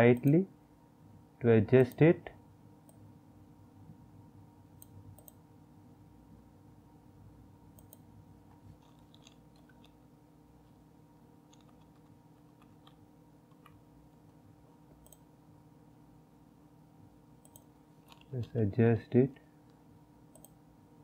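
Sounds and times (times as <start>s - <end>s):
faint room hum: 0.0s - 21.0s
computer mouse clicks: 4.8s - 5.4s, 7.8s - 8.1s, 8.8s - 10.0s, 11.5s - 14.3s, 14.9s - 15.3s, 17.4s - 18.6s, 19.7s - 20.6s.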